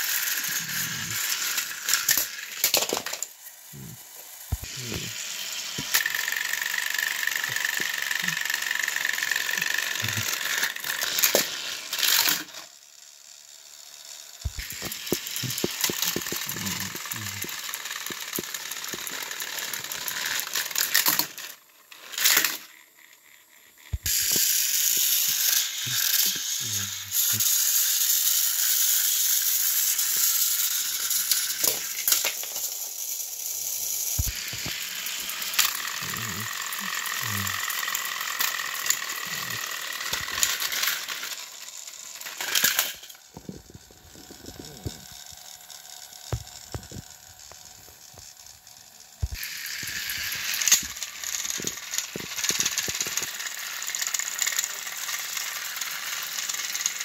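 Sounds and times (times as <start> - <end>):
toy train motors whirring: 0.0 - 57.0
plastic parts clicking and clattering: 0.3 - 3.4, 5.8 - 12.6, 14.4 - 22.7, 29.8 - 32.9, 33.7 - 45.5, 49.2 - 57.0.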